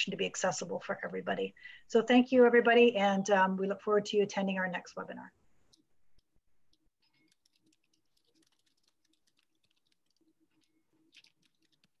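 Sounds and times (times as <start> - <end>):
small clicks: 5.7 - 12.0.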